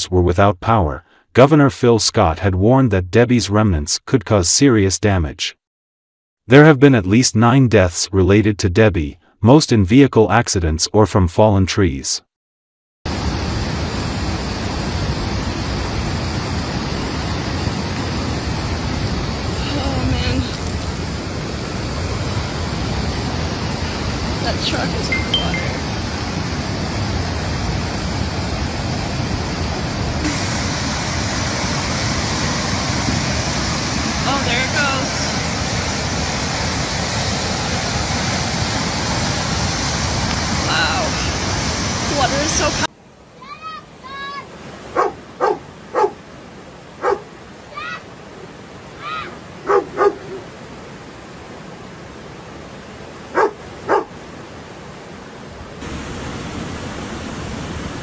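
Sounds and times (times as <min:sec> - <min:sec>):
floodwater rushing: 0:13.1 - 0:58.0
dog barking: 0:44.9 - 0:46.2, 0:47.0 - 0:47.3, 0:49.6 - 0:50.4, 0:53.3 - 0:54.2.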